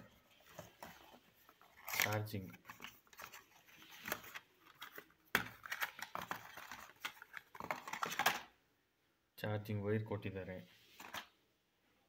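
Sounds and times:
cardboard packaging handled: 0.0 - 8.5.

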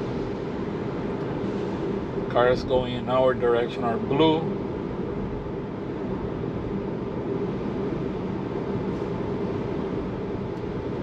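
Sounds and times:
road and tyre noise in car: 0.0 - 11.0.

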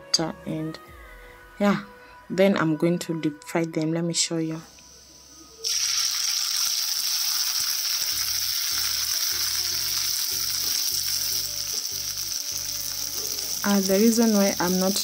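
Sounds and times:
fish sizzling in hot oil: 5.6 - 15.0.

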